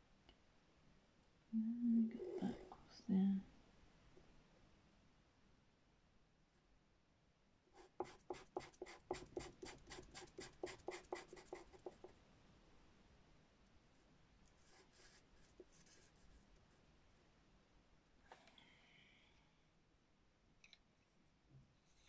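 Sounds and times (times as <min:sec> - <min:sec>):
pastel pencil scratching on paper: 0:07.8 - 0:12.1, 0:14.6 - 0:16.8.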